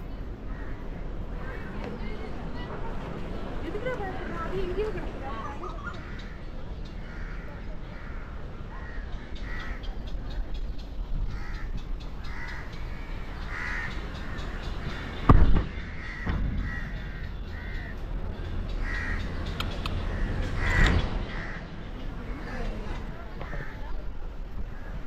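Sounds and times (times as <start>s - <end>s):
crows cawing: 0.4s - 1.8s, 5.7s - 10.1s, 11.2s - 22.7s, 23.4s - 24.0s
steady low rumble: 6.0s - 25.0s
loud thump: 15.3s - 17.1s.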